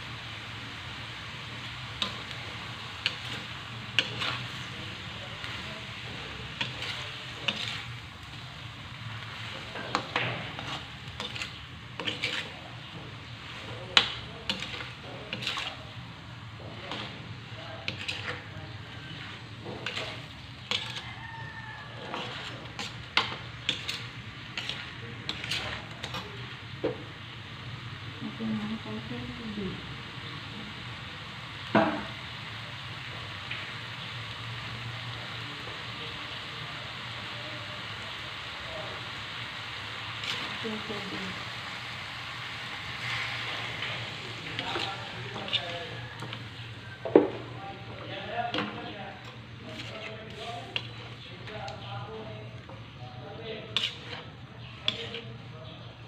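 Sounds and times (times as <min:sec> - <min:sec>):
food sizzling: 0:00.0 - 0:56.0
metal spatula scraping a wok: 0:01.6 - 0:26.6, 0:39.7 - 0:55.5.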